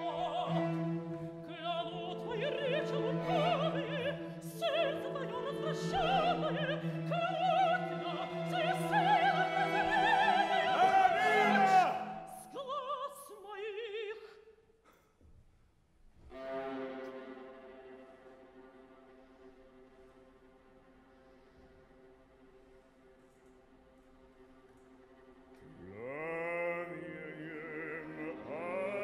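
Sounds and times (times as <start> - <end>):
opera voice singing with vibrato: 0.0 - 14.3, 25.7 - 29.0.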